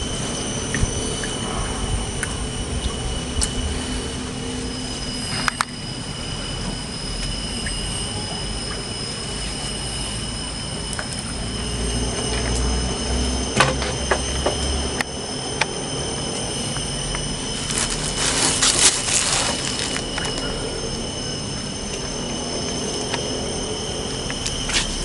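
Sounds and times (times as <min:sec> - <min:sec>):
high-pitched whine: 0:00.0 - 0:25.0
low rumble: 0:00.0 - 0:25.0
rustling noise: 0:17.6 - 0:20.4.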